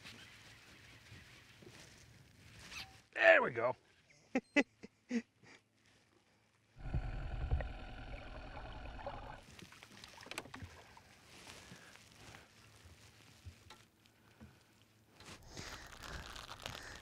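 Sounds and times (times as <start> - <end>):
boat motor humming underwater: 6.8 - 9.4.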